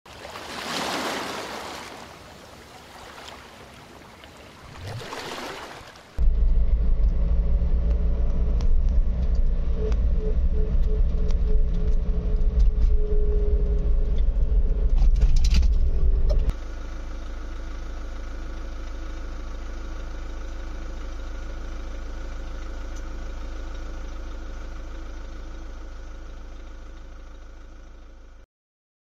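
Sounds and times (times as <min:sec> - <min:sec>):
car engine and road rumble: 0:01.5 - 0:28.5
steady hum: 0:06.2 - 0:27.9.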